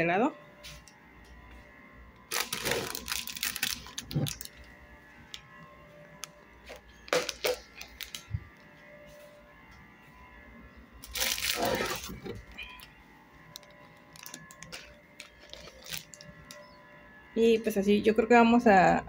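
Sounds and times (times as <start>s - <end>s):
food packets rustling: 2.3s - 4.8s, 6.2s - 8.6s, 11.0s - 16.8s.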